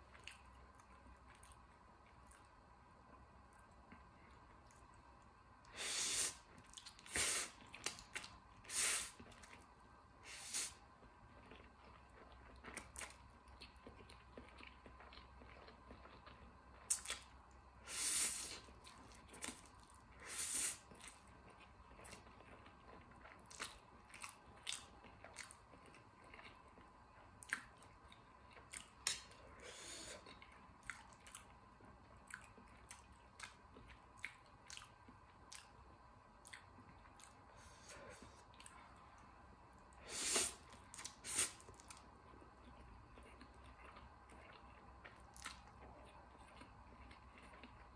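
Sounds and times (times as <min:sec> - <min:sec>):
wet chewing and smacking: 0:00.0 - 0:02.5, 0:06.4 - 0:08.6, 0:10.9 - 0:17.7, 0:18.6 - 0:20.1, 0:20.8 - 0:29.5, 0:30.2 - 0:35.8, 0:36.4 - 0:37.4, 0:40.6 - 0:47.9.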